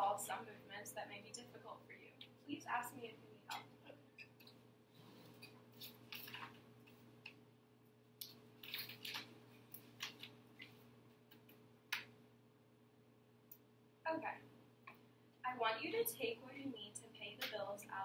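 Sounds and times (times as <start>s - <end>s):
low steady hum: 0.0s - 18.0s
paper pages rustling: 5.8s - 7.0s.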